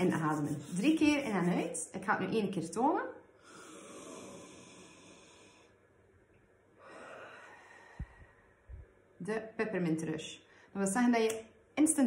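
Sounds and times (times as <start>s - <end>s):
woman breathing in through nose: 3.4s - 5.8s, 6.8s - 8.6s.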